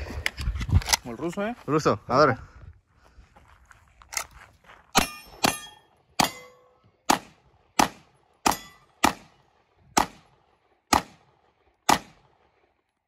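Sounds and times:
handgun shots with echo: 0:05.0 - 0:09.4, 0:10.0 - 0:10.3, 0:10.9 - 0:11.3, 0:11.9 - 0:12.4.

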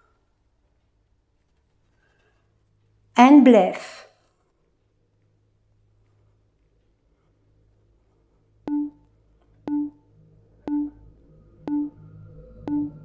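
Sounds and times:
electronic timer beeps: 0:08.7 - 0:09.0, 0:09.7 - 0:10.0, 0:10.6 - 0:13.0.

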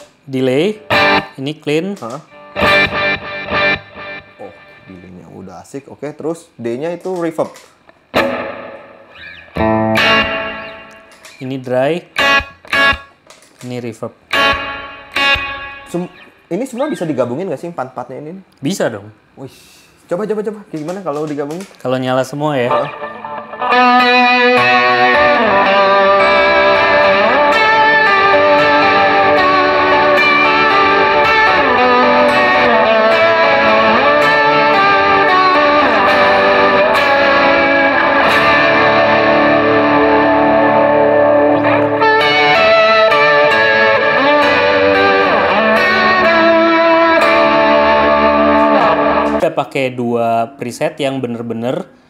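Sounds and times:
electric guitar with effects: 0:00.0 - 0:01.4, 0:02.0 - 0:05.2, 0:07.6 - 0:11.4, 0:12.1 - 0:17.2, 0:22.6 - 0:49.4.

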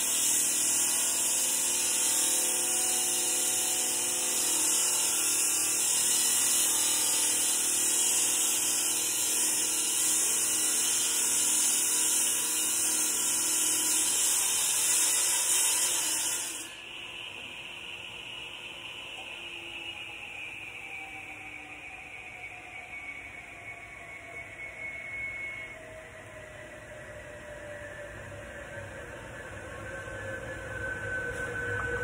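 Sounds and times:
saw blade grinding through concrete: 0:00.0 - 0:16.8.

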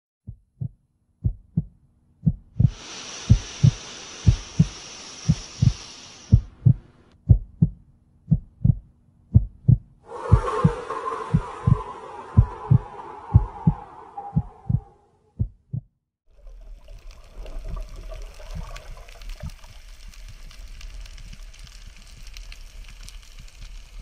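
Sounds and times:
heartbeat double thumps: 0:00.2 - 0:04.7, 0:05.3 - 0:13.8, 0:14.4 - 0:16.0
high hiss: 0:02.6 - 0:07.0, 0:10.1 - 0:14.9
rushing noise: 0:10.1 - 0:15.2.

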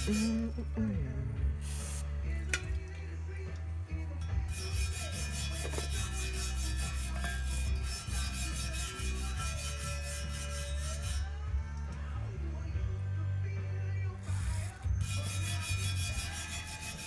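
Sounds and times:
scrubbing metal surface by hand: 0:00.0 - 0:00.5, 0:01.6 - 0:02.0, 0:04.5 - 0:11.3, 0:15.0 - 0:17.0.

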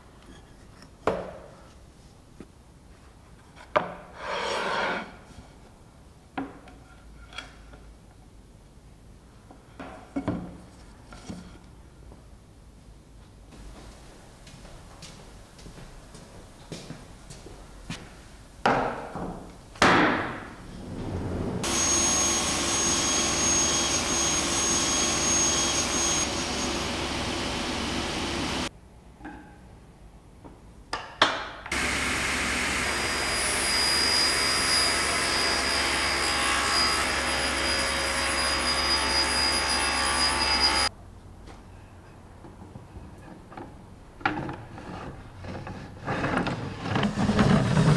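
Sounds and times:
scrape: 0:03.5 - 0:05.6, 0:44.5 - 0:47.9
panel saw whining: 0:20.6 - 0:28.7, 0:31.7 - 0:40.9.

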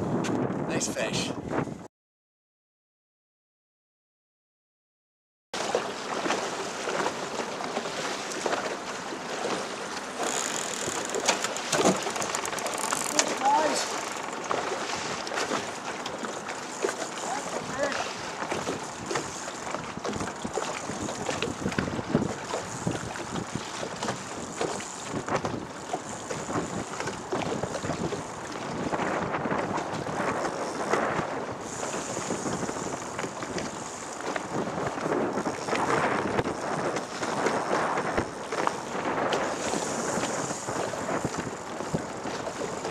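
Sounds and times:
wind buffeting microphone: 0:00.0 - 0:01.9, 0:10.3 - 0:42.9
choppy river water: 0:05.6 - 0:42.9.

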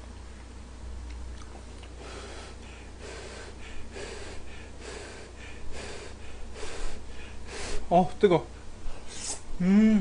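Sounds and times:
person slurping noodles: 0:09.1 - 0:09.4.

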